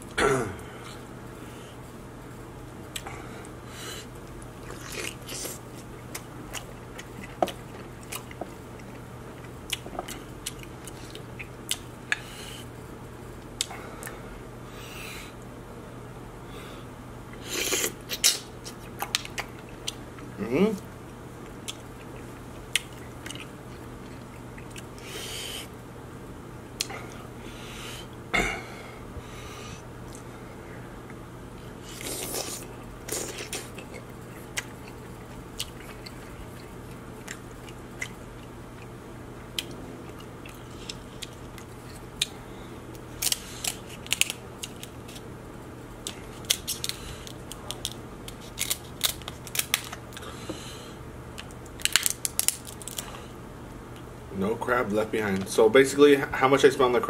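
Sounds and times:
chewing: 0:04.2 - 0:12.3, 0:21.6 - 0:25.1, 0:31.9 - 0:42.4
crab shell cracking: 0:43.2 - 0:45.2, 0:46.0 - 0:50.2, 0:51.4 - 0:53.1.

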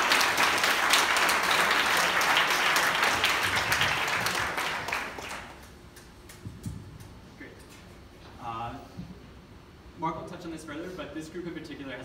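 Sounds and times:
crowd applauding: 0:00.0 - 0:05.7.

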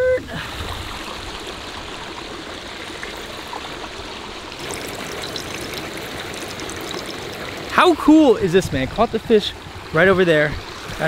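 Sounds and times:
fish frying in hot oil: 0:01.2 - 0:07.9
oil crackling and popping: 0:04.5 - 0:07.8.

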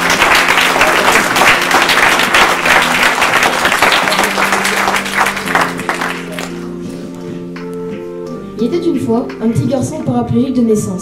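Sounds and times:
audience applauding: 0:00.0 - 0:06.8.

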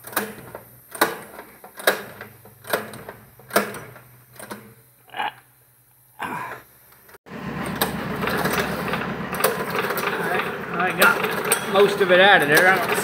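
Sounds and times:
recoil pull cord yanked: 0:00.0 - 0:04.7
steady loud noise: 0:07.3 - 0:13.0.

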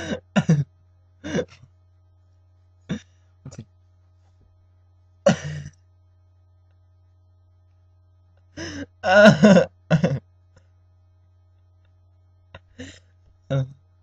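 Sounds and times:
person coughing: 0:00.0 - 0:01.6, 0:02.9 - 0:03.6, 0:05.3 - 0:05.8, 0:08.6 - 0:10.2
steady low hum: 0:00.0 - 0:14.0.

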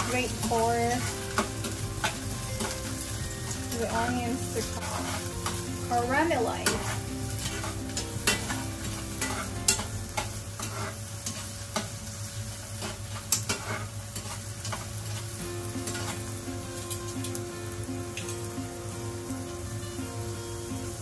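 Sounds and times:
metal utensil scraping a pan: 0:00.0 - 0:12.0, 0:12.7 - 0:17.0
onions sizzling in oil: 0:00.0 - 0:21.0.

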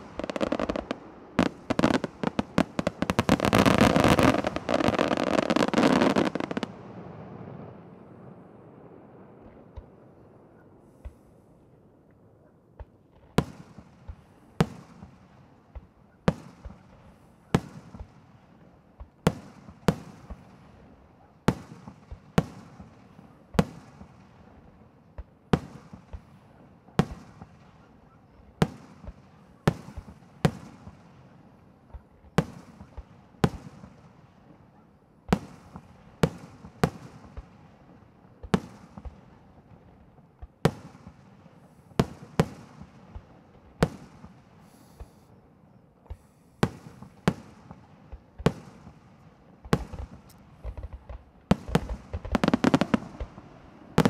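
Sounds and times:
fireworks shells bursting with bangs: 0:00.0 - 0:06.8, 0:35.3 - 0:45.4, 0:46.0 - 0:54.0
small firework pops: 0:09.4 - 0:10.0, 0:10.9 - 0:11.3, 0:12.8 - 0:18.2, 0:19.0 - 0:20.6, 0:25.1 - 0:45.4, 0:46.0 - 0:54.0.

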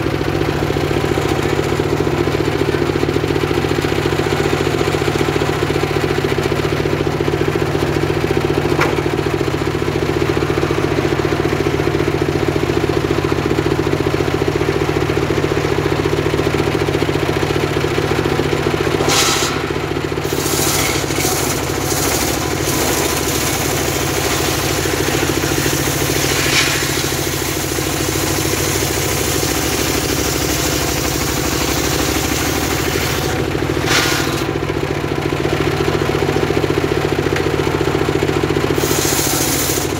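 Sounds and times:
engine drone: 0:00.0 - 0:39.9
circular saw ripping timber: 0:18.5 - 0:34.9, 0:38.6 - 0:39.9.

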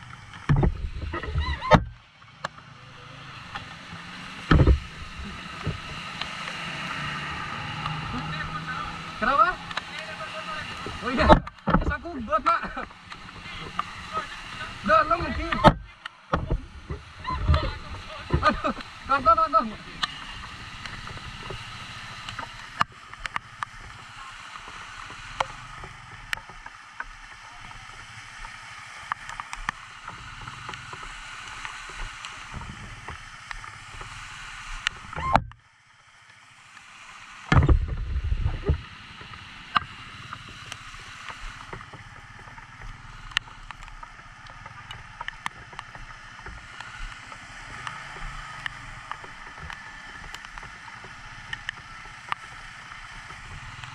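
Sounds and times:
raindrops hitting camera: 0:00.0 - 0:53.9
water rushing around tyres: 0:00.0 - 0:53.9
motorcycle engine: 0:01.8 - 0:24.3.

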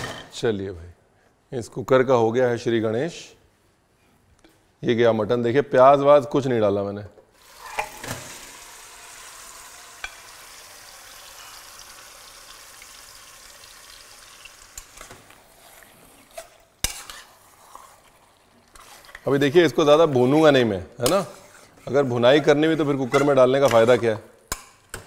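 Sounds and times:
meat sizzling in hot oil: 0:07.4 - 0:15.6.

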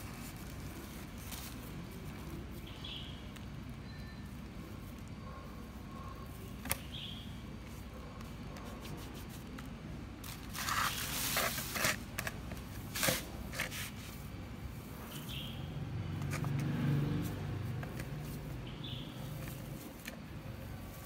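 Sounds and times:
plastic bag rustling and crinkling: 0:00.0 - 0:02.6, 0:10.2 - 0:14.2
scrunching with sharp crackles: 0:04.4 - 0:14.2.

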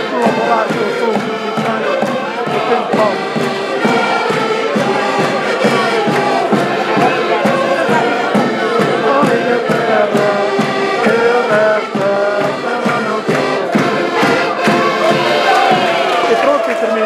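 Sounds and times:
accordions playing folk song: 0:00.0 - 0:17.0
voices singing in chorus: 0:00.0 - 0:17.0.

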